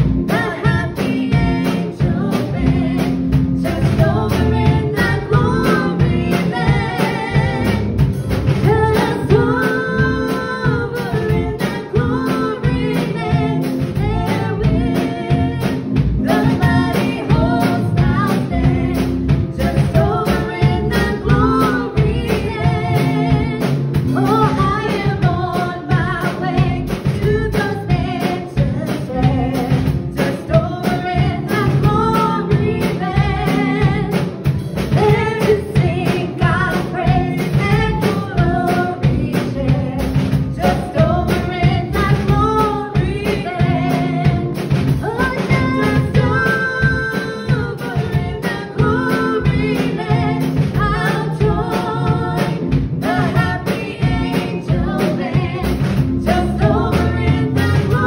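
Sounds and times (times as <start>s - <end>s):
instrumental backing with steady beat: 0.0s - 58.0s
women singing gospel song: 0.0s - 58.0s.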